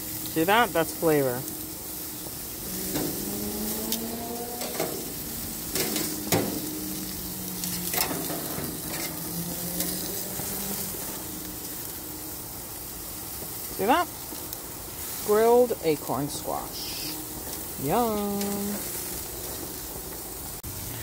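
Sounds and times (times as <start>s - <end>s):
vegetables sizzling on a grill: 0.0s - 21.0s
metal tongs clicking and scraping: 7.8s - 10.1s.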